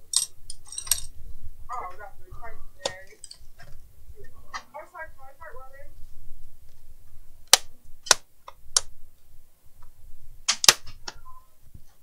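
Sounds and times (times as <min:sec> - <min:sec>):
plastic clips snapping: 0:07.5 - 0:08.9, 0:10.5 - 0:11.1.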